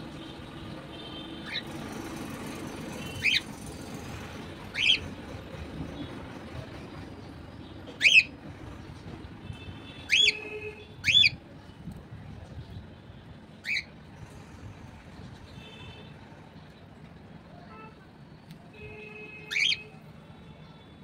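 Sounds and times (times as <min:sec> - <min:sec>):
cockatiel shrill calls: 0:04.7 - 0:05.0, 0:19.5 - 0:19.8.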